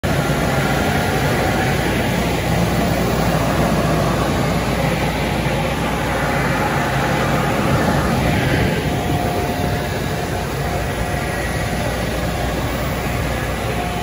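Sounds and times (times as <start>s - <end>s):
car wash machinery running: 0.0s - 14.0s
low hum: 0.0s - 14.0s.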